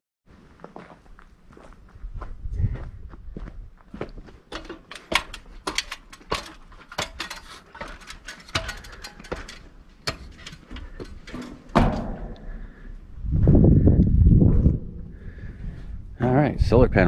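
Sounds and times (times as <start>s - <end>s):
mechanism clicking and knocking: 4.5s - 12.5s.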